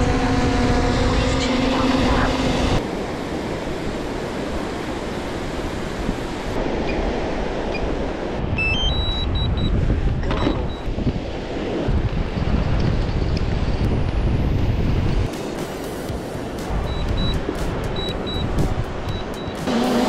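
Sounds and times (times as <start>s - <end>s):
drone propeller hum: 0.0s - 6.7s, 13.6s - 20.0s
wind buffeting microphone: 0.0s - 15.3s
rising electronic beeps: 8.6s - 9.7s, 16.8s - 17.4s, 18.0s - 20.0s.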